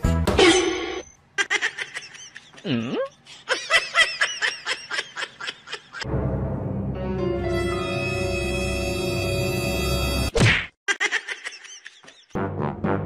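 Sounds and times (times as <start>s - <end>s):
music: 0.0s - 0.4s, 6.0s - 10.3s, 12.4s - 13.0s
person laughing hard: 1.4s - 6.0s, 10.9s - 12.4s.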